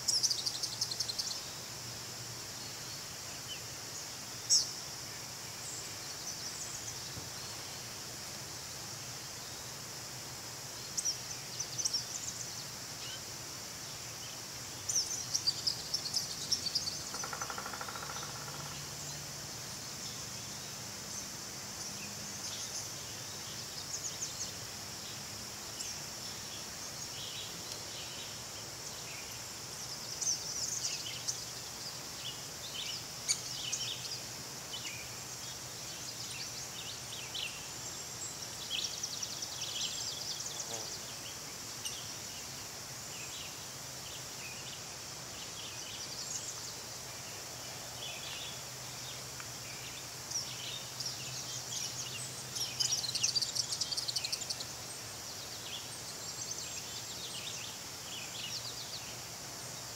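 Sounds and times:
small birds chirping: 0.0 - 1.6, 10.7 - 59.9
insects chorus: 0.0 - 59.9.

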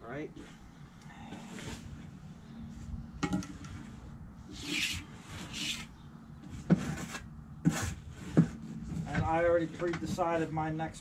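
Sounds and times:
tool rasping scrapes on stone: 4.5 - 5.9.

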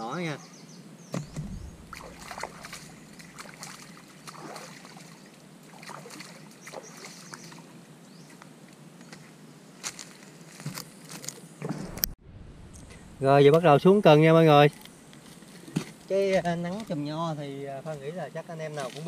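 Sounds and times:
hands splashing in water: 1.3 - 7.2.

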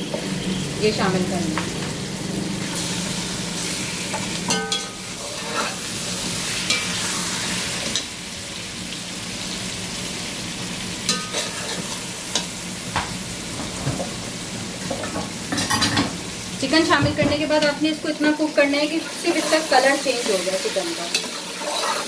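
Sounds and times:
chicken sizzling in a pot: 0.0 - 22.0
metal spoon scraping and clinking: 4.1 - 5.8, 11.1 - 12.5, 21.1 - 22.0.

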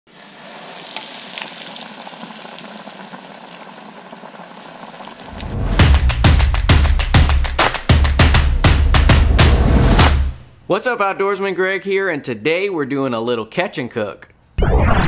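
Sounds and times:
fish sizzling in hot oil: 0.1 - 5.8
drum beats of intro music: 5.3 - 10.6.

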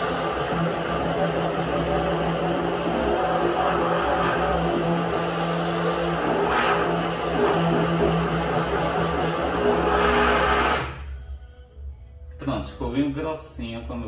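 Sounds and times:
stick blender motor running: 0.0 - 11.0.

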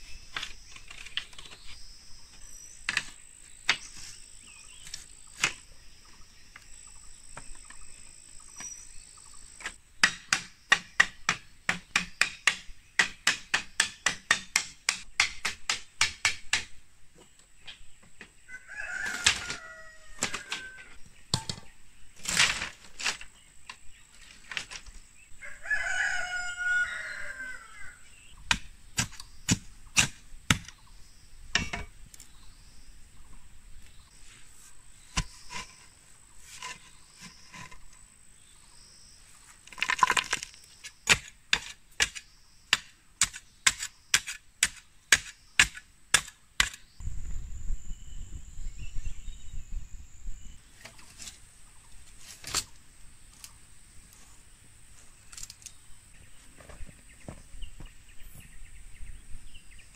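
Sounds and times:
hammer blows on bamboo: 9.7 - 16.8, 41.1 - 46.9
rooster crowing: 18.5 - 21.0, 25.4 - 28.0
post pounded into soil: 21.3 - 23.3, 31.5 - 32.0, 35.1 - 35.9, 39.7 - 46.8.

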